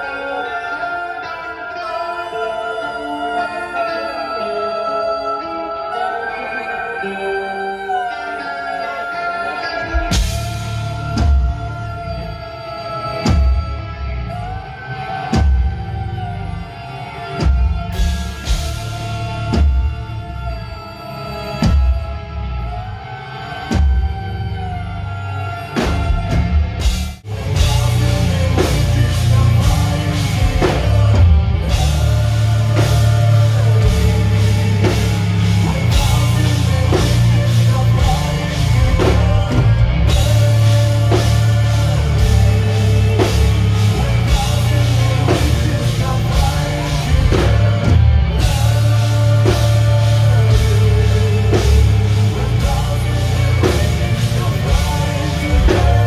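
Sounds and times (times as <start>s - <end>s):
heavy metal band playing: 0.0s - 56.0s.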